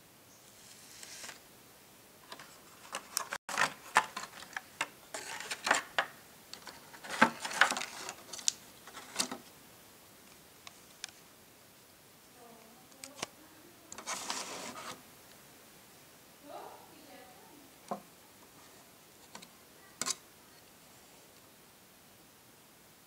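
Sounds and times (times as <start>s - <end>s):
plastic blister pack crinkling: 2.2s - 9.4s.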